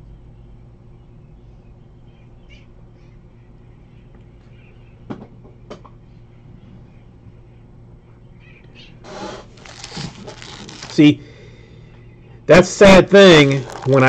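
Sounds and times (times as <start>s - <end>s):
foil wrappers crinkling: 9.4s - 11.3s, 12.8s - 14.0s.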